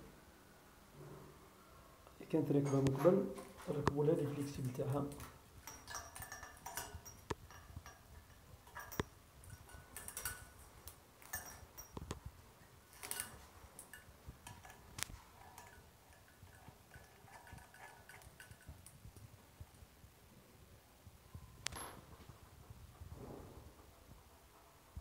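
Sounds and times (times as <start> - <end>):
metal clicks and knocks: 2.6 - 19.3.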